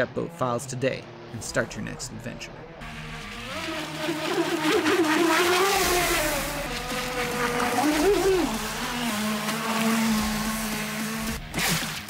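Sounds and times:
electric motor whine: 2.7s - 12.0s.

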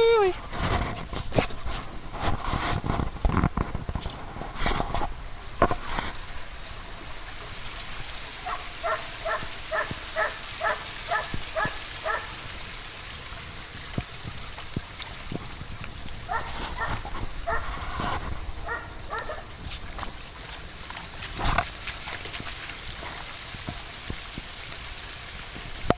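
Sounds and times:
steady high hiss: 0.0s - 25.9s
water sloshing: 0.0s - 25.9s
knocks and rustles: 0.4s - 6.2s
dog yapping: 8.5s - 12.3s, 18.6s - 19.4s.

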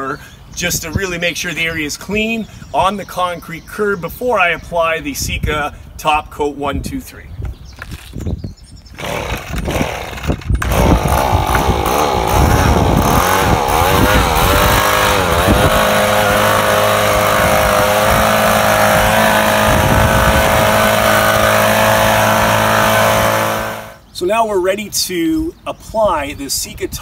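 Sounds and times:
leaf blower engine running: 9.0s - 24.0s.

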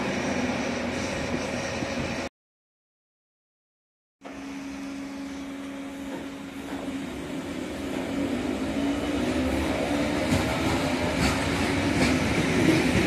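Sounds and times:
electric train humming: 0.0s - 2.3s, 4.2s - 13.0s
train motor whine rising: 4.2s - 12.0s.

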